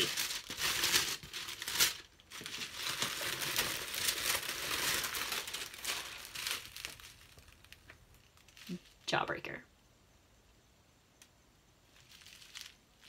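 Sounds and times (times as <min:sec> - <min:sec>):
plastic packaging rustling: 0:00.0 - 0:09.1, 0:11.9 - 0:13.0.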